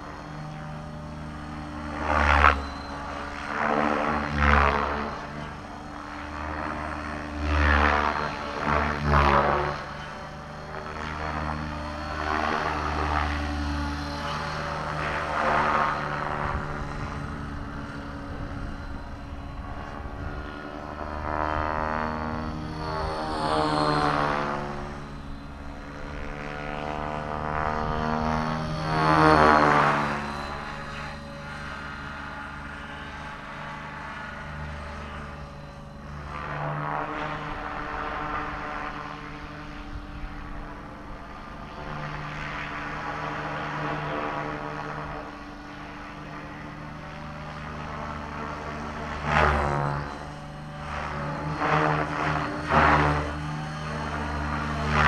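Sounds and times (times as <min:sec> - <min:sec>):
rc helicopter motor whine: 0:00.0 - 0:55.0
rotor blade noise: 0:00.0 - 0:55.0
wind rumble on microphone: 0:14.2 - 0:25.0.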